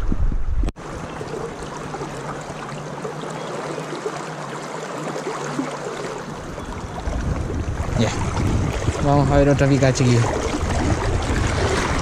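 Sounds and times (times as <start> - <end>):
wind rumble on microphone: 0.0 - 0.8, 6.5 - 12.0
fast-flowing river rushing: 0.8 - 12.0.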